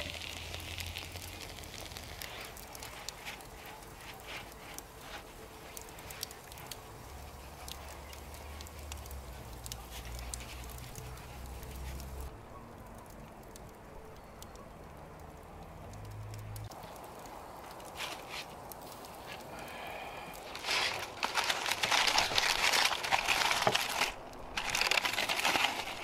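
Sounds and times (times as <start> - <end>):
wood fire crackling: 0.0 - 26.0.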